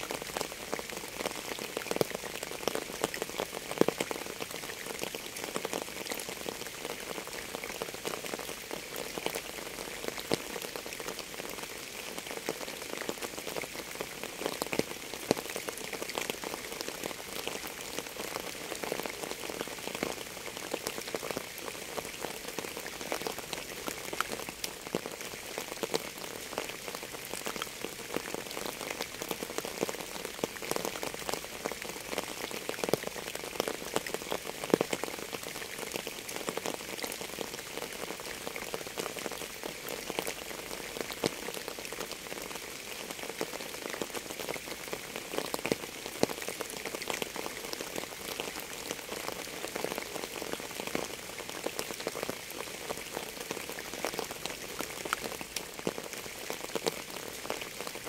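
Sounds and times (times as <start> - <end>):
rain falling: 0.0 - 58.0.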